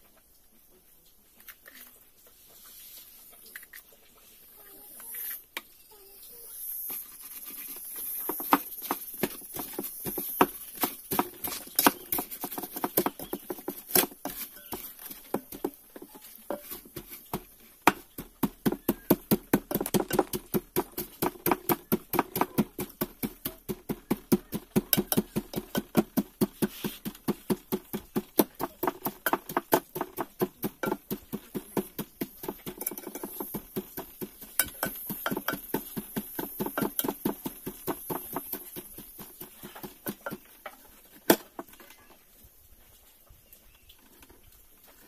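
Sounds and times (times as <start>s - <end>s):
wooden pestle pounding in pot: 8.2s - 40.6s.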